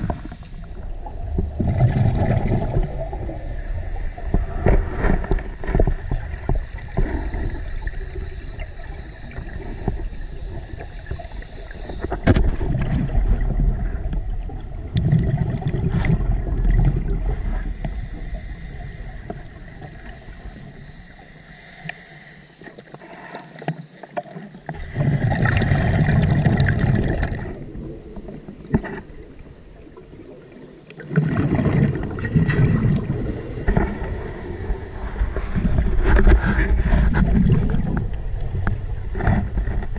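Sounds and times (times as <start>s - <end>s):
exhaled bubbles rumbling: 0.0s - 21.1s, 24.6s - 39.9s
diver breathing through regulator: 2.1s - 5.7s, 17.0s - 23.6s, 32.7s - 39.9s.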